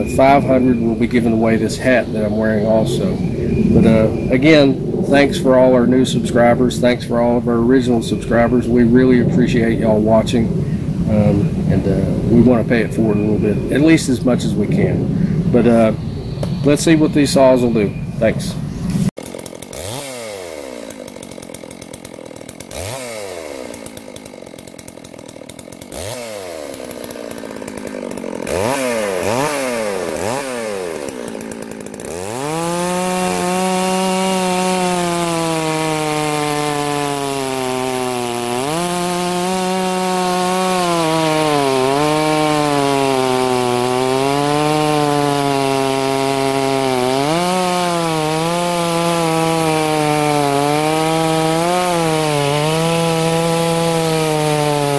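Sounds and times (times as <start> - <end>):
chainsaw revving and cutting log: 0.0 - 5.1, 19.1 - 54.9.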